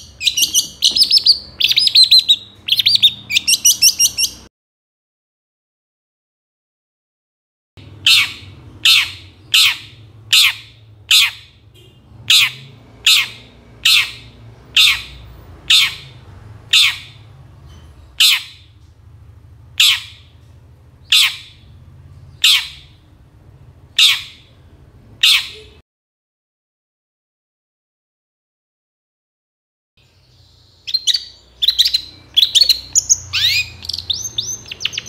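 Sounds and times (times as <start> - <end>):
bird giving harsh call: 0.0 - 4.5, 7.9 - 17.3, 18.2 - 18.7, 19.8 - 20.3, 21.0 - 21.7, 22.4 - 23.0, 24.0 - 24.5, 25.2 - 25.8, 30.9 - 35.0.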